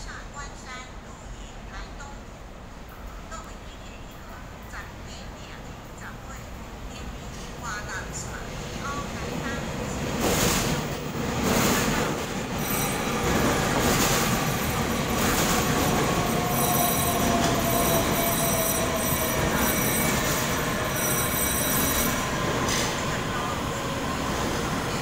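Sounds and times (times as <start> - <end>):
train wheels rumbling on rail: 6.9 - 25.0
high steady squeal: 14.8 - 22.4.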